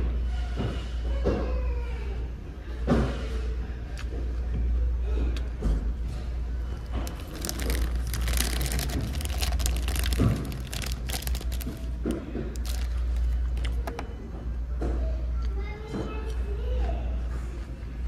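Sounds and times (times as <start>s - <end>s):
low steady hum: 3.7s - 18.0s
plastic bag crinkling: 6.8s - 13.8s.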